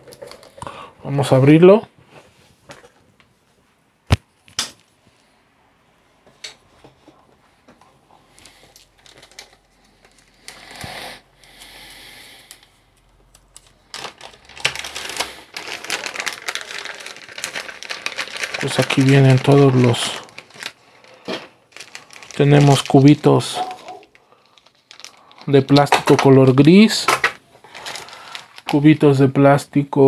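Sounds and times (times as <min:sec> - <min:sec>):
plastic crinkling and rustling: 0:00.0 - 0:00.7, 0:06.8 - 0:10.9, 0:13.1 - 0:29.2.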